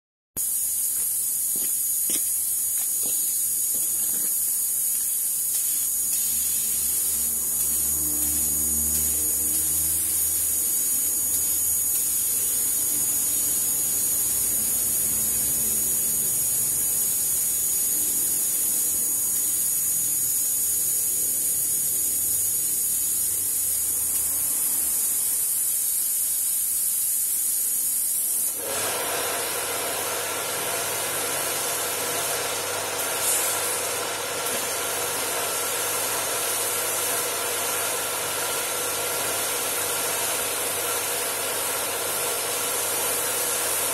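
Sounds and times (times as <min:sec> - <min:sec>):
paint spray gun hissing: 0:00.4 - 0:43.9
machine hum: 0:03.0 - 0:18.2.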